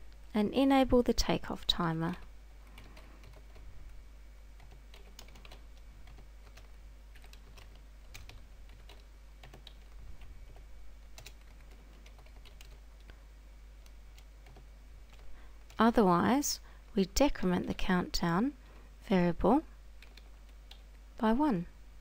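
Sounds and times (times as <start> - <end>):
low steady hum: 0.0 - 22.0
computer keyboard typing: 2.1 - 3.7, 4.6 - 13.1, 13.8 - 15.9, 20.0 - 21.0.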